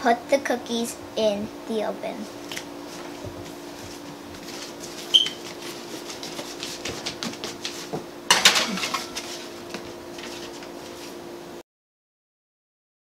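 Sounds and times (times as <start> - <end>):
steady low hum: 0.0 - 11.6
pan rattling onto oven rack: 8.3 - 9.2
metal baking sheet clanking: 8.3 - 9.3.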